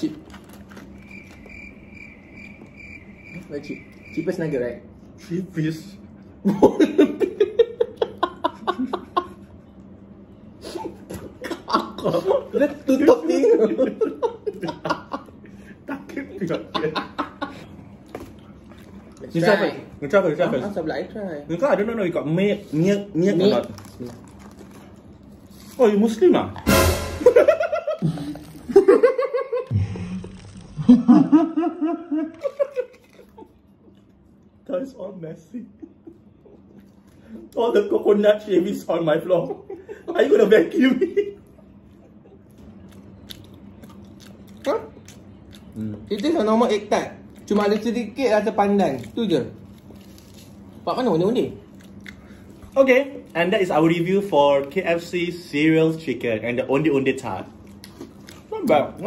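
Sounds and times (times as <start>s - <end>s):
men laughing: 6.4s - 9.6s, 10.6s - 18.0s, 27.2s - 29.8s, 30.8s - 33.6s, 35.5s - 36.8s, 39.2s - 42.6s
man laughing hard: 15.9s - 17.7s, 27.2s - 29.8s, 30.8s - 32.9s.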